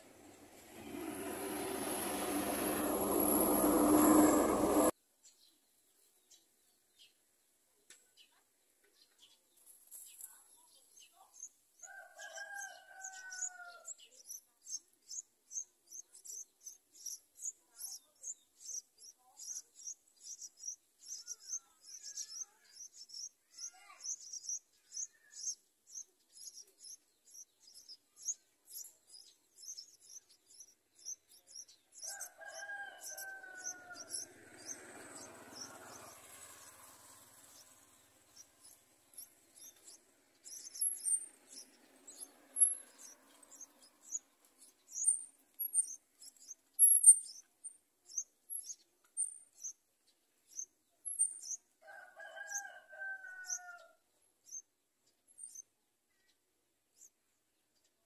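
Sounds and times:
nestlings high chirping: 12.4s - 51.7s, 54.4s - 56.4s.

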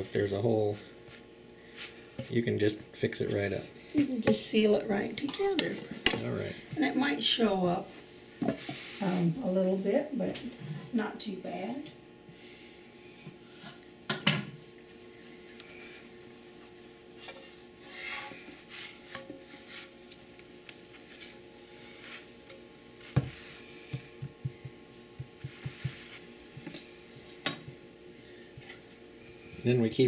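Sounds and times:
wooden stick scraping on griddle: 16.4s - 24.0s, 25.2s - 27.5s
wood knocking on griddle: 23.1s - 26.8s.

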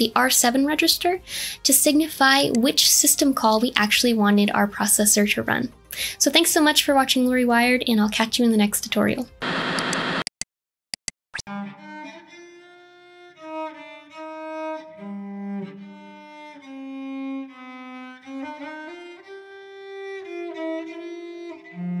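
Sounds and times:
bowed cello melody: 11.5s - 22.0s.

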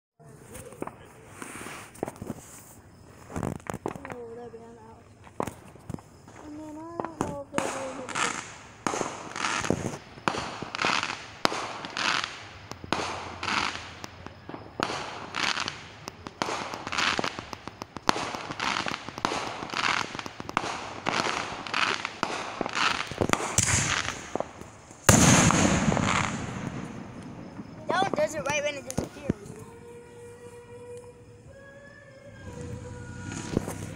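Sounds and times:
fireworks hissing and popping: 0.2s - 33.9s
loud firework bang: 20.5s - 29.4s.

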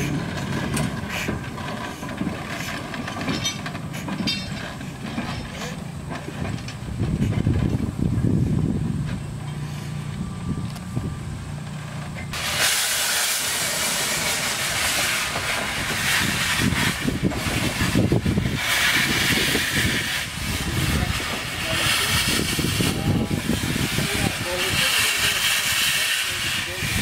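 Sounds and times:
steam hissing from cylinders: 0.0s - 6.0s, 12.3s - 27.0s
low rumble of engine and wheels: 0.0s - 27.0s.

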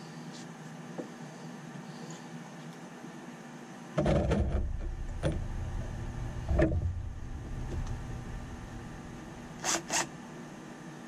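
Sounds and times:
low rumble: 4.2s - 9.6s.

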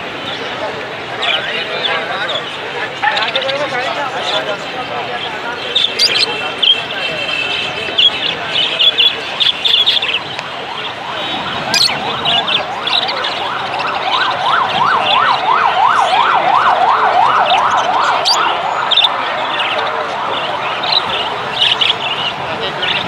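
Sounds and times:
small birds chirping: 1.2s - 14.3s, 17.4s - 23.0s
electronic siren yelping: 10.2s - 21.0s.

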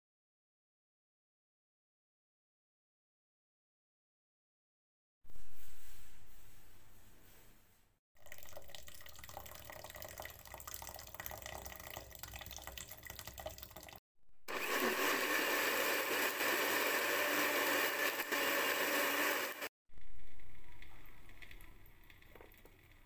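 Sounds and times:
water pouring into plastic jug: 8.2s - 14.0s, 20.3s - 23.0s
blender grinding: 14.5s - 19.7s.

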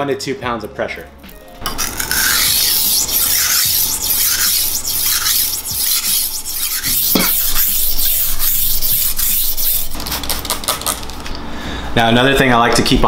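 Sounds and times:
whetstone squeak: 1.7s - 9.9s
knife scraping on whetstone: 1.7s - 10.5s.

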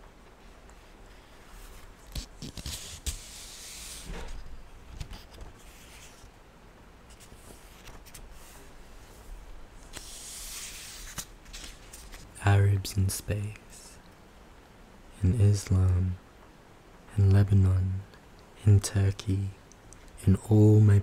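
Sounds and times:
book pages rustling: 1.5s - 6.3s, 7.1s - 9.2s, 9.8s - 12.4s.

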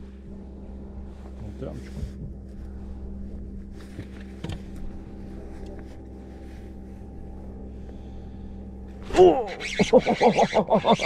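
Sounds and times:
boat motor humming: 0.0s - 11.0s
loud gliding pitched call: 9.0s - 11.0s.

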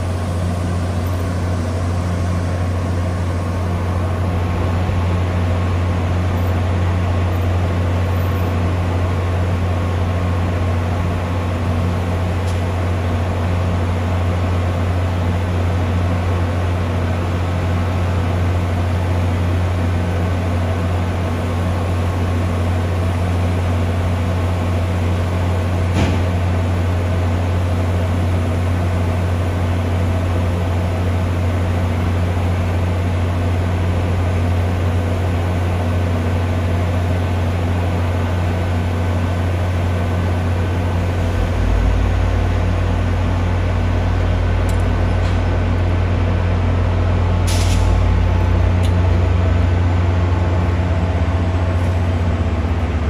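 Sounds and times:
diesel train idling hum: 0.0s - 53.0s.

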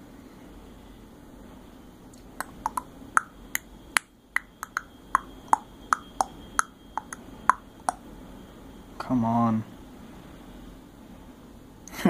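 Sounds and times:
sharp ringing clicks: 4.4s - 8.0s.

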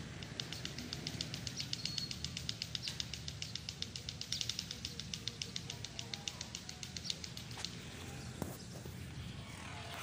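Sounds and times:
low outdoor rumble: 0.0s - 10.0s.

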